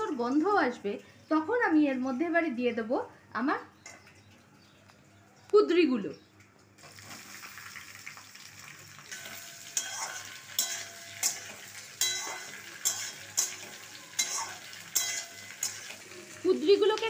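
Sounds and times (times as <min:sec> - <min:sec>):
vegetables sizzling in oil: 0:06.8 - 0:17.0
metal spatula scraping wok: 0:09.0 - 0:16.4.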